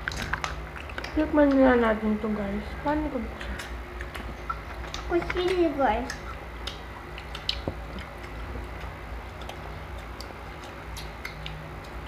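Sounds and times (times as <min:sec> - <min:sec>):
low steady hum: 0:00.0 - 0:12.0
soft clicks and taps of eating: 0:03.4 - 0:12.0.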